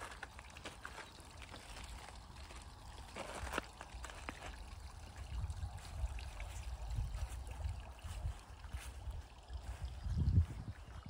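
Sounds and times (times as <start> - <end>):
water trickling: 0.0 - 11.0.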